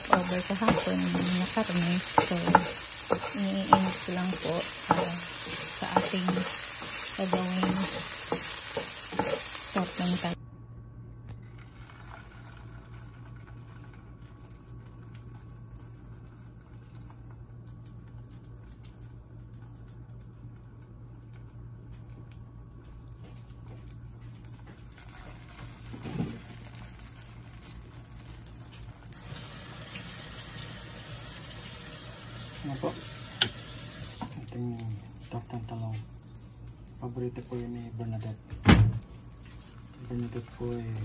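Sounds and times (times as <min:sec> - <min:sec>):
oil sizzling in a frying pan: 0:00.0 - 0:10.4, 0:24.8 - 0:41.0.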